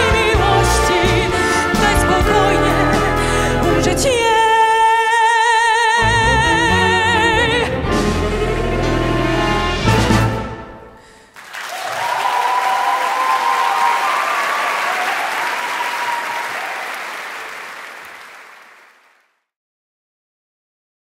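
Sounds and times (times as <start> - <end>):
audience applause: 11.3 - 19.3.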